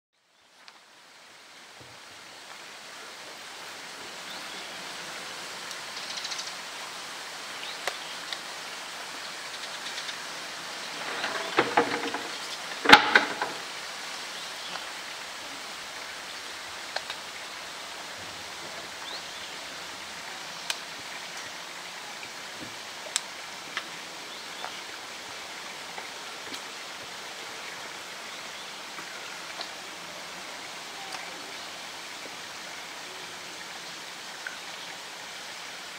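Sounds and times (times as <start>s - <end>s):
faint clicks: 9.5s - 10.3s, 16.9s - 17.2s, 20.6s - 21.5s
sharp knocks: 11.0s - 13.7s.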